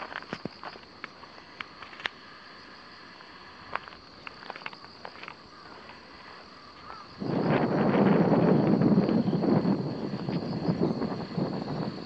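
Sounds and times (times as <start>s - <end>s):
small clicks: 0.0s - 2.2s, 3.7s - 6.0s
high insect chorus: 0.0s - 12.0s.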